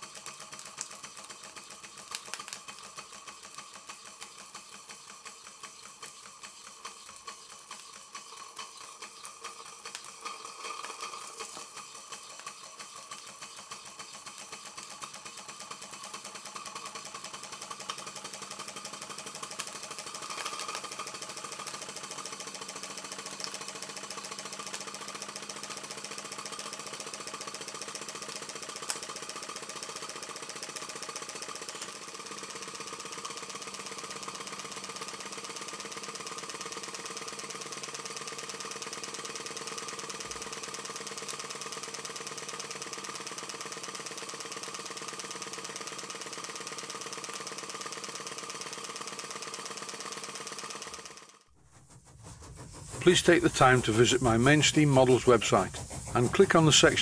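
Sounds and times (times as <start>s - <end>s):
steam engine beat: 51.5s - 57.0s
steam hissing: 51.6s - 57.0s.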